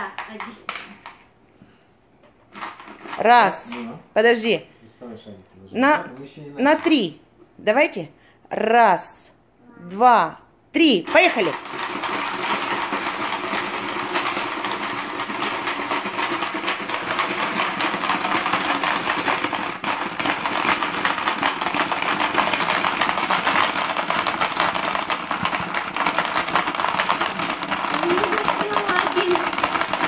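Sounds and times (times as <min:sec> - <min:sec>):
marbles rattling: 0:11.1 - 0:30.0.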